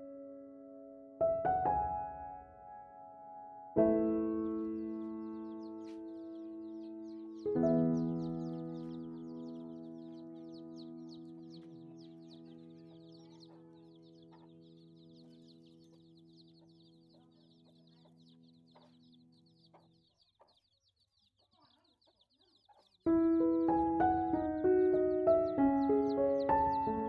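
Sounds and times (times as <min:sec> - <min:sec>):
held music chord: 0:03.2 - 0:18.9, 0:23.1 - 0:27.0
chicks peeping: 0:04.3 - 0:27.0.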